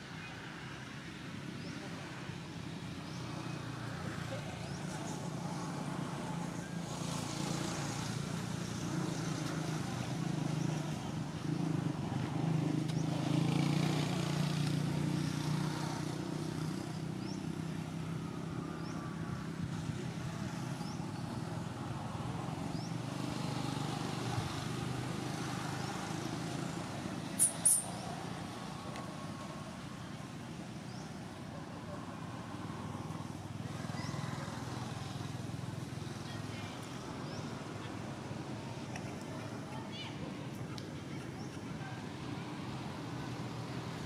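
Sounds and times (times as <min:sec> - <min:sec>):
traffic rumble: 0:00.0 - 0:44.0
short high-pitched chirps: 0:27.4 - 0:28.0.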